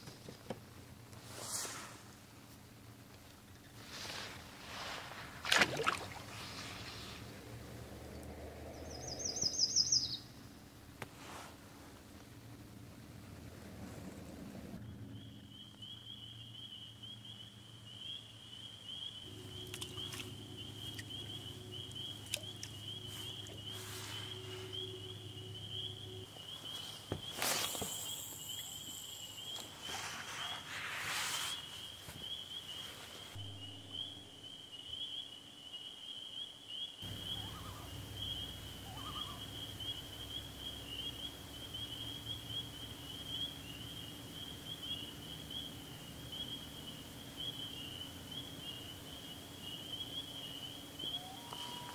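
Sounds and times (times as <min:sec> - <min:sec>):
noisy rustles: 0:00.0 - 0:09.0, 0:10.3 - 0:14.9, 0:19.3 - 0:33.5
low hum: 0:00.7 - 0:31.3, 0:33.2 - 0:35.1, 0:37.0 - 0:49.8
frogs trilling: 0:05.5 - 0:10.6, 0:14.8 - 0:30.6, 0:31.6 - 0:51.9.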